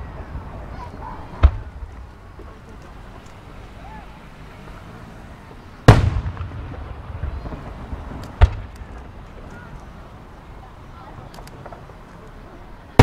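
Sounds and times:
firework shells bursting: 0:05.8 - 0:10.0.

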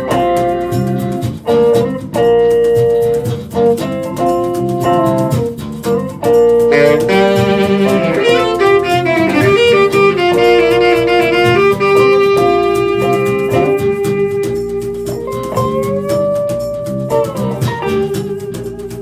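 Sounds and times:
small band playing: 0:00.0 - 0:19.0
lead line of long held notes: 0:06.7 - 0:13.8.

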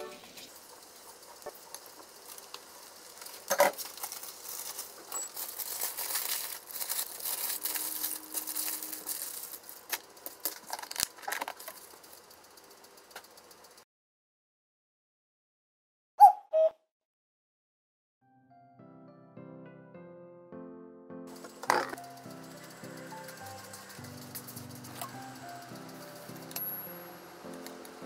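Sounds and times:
aluminium foil crinkling: 0:00.4 - 0:13.8, 0:21.3 - 0:28.0.

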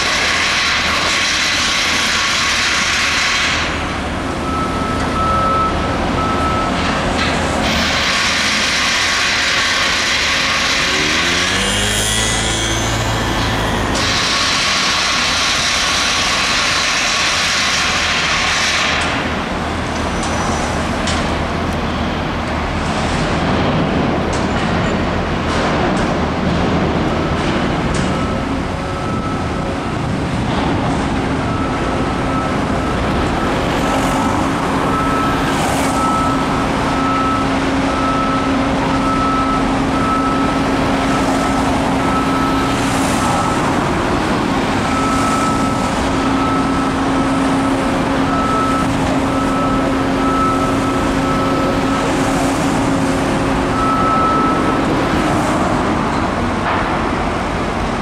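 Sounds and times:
street traffic: 0:00.0 - 0:58.0
machinery engine hum: 0:03.8 - 0:16.3, 0:19.0 - 0:58.0
high electronic beep: 0:10.8 - 0:14.1, 0:44.8 - 0:52.2, 0:53.7 - 0:54.9.

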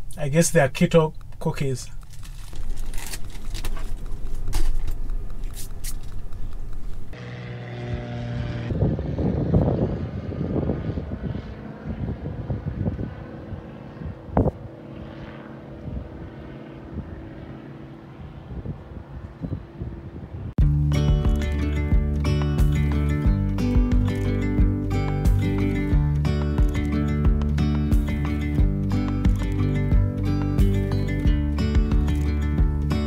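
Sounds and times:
rustling: 0:01.9 - 0:07.1
propeller airplane flying overhead: 0:02.0 - 0:33.0
sharp clicks: 0:29.0 - 0:29.8.

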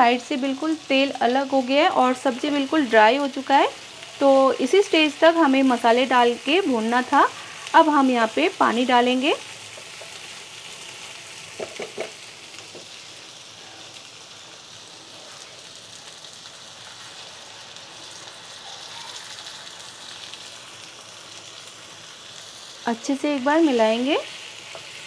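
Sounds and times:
vegetables sizzling in a pan: 0:00.0 - 0:25.0
water hissing in hot oil: 0:00.0 - 0:25.0.

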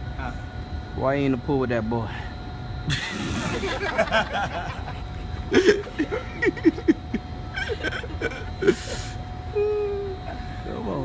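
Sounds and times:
man chuckling: 0:02.9 - 0:10.5.

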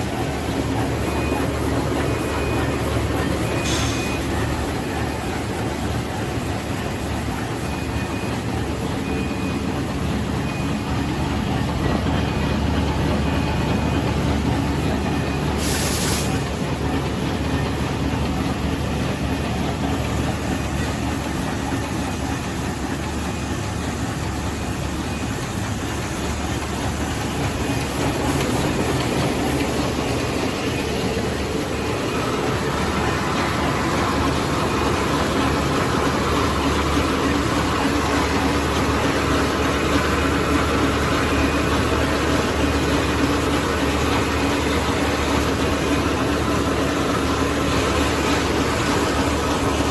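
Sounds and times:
packing machine running: 0:00.0 - 0:49.9
brief hiss: 0:15.6 - 0:16.4.

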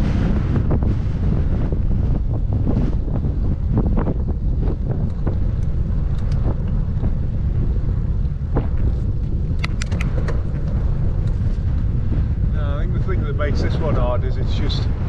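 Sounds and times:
wind buffeting microphone: 0:00.0 - 0:15.0
sharp clicks: 0:05.0 - 0:06.4, 0:09.5 - 0:10.5.

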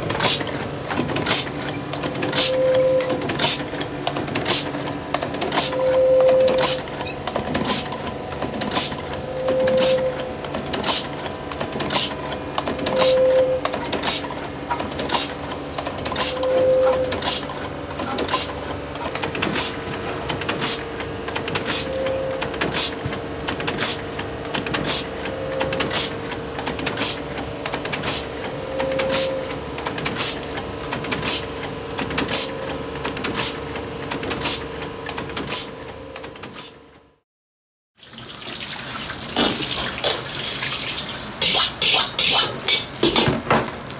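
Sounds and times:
machine mechanical hum: 0:00.0 - 0:37.2, 0:38.0 - 0:43.9
short tone: 0:02.4 - 0:03.2, 0:05.8 - 0:06.8, 0:09.3 - 0:10.3, 0:12.9 - 0:13.7.

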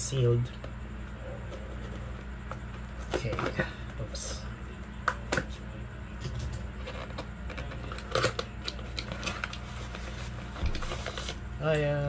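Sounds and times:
packaging rustling and scraping: 0:06.7 - 0:11.4.

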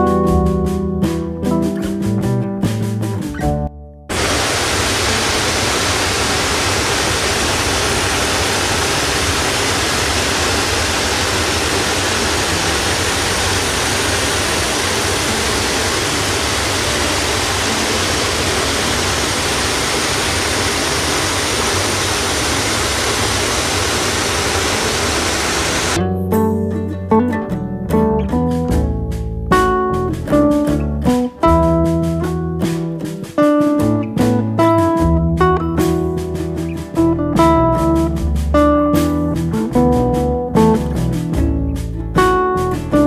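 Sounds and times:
loud steady rushing noise: 0:04.1 - 0:26.0.

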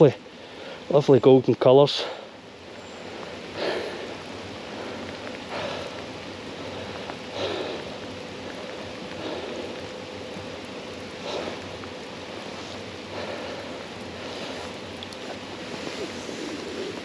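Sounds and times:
river water running: 0:00.0 - 0:17.0.

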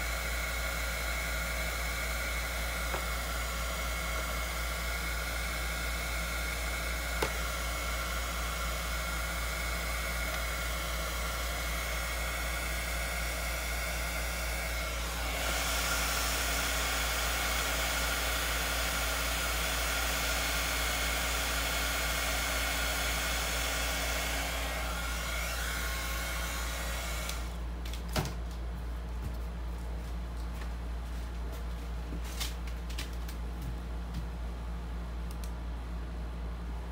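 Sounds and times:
hot-air blower hissing: 0:00.0 - 0:27.7.

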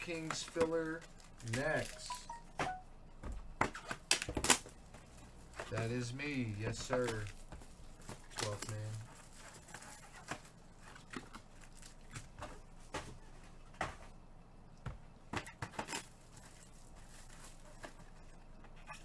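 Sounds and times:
foil packs crinkling: 0:00.0 - 0:02.5, 0:03.9 - 0:12.8, 0:15.6 - 0:19.0.

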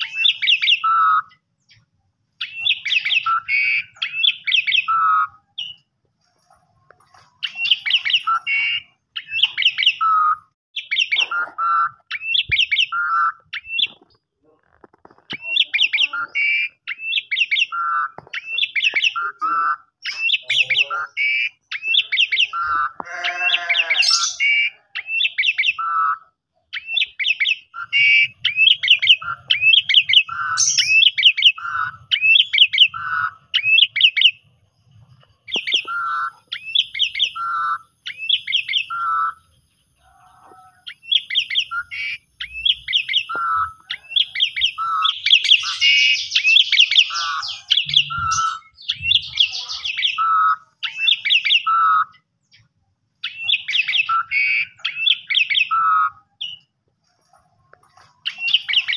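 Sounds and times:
starling whistling song: 0:00.0 - 0:01.8, 0:02.4 - 0:05.9, 0:07.4 - 0:14.0, 0:15.3 - 0:34.5, 0:35.4 - 0:39.6, 0:40.8 - 0:56.7, 0:58.2 - 0:58.9
harsh rasping bird call: 0:15.4 - 0:34.4, 0:35.5 - 0:52.2.

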